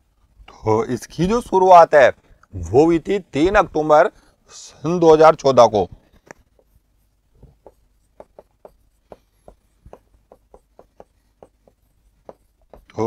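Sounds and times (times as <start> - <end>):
pen tapping and scratching on screen: 6.1 - 13.0.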